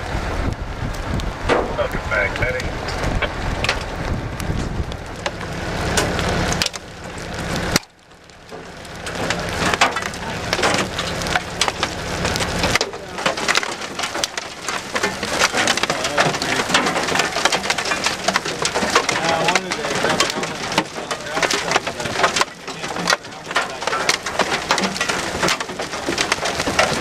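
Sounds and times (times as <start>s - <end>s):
hailstones striking: 0.0s - 27.0s.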